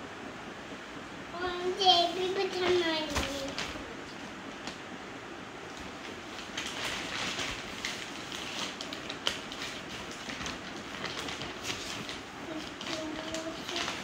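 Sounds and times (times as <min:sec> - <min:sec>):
cloth rustling: 0:05.8 - 0:14.0
plastic packaging crinkling: 0:05.8 - 0:14.0.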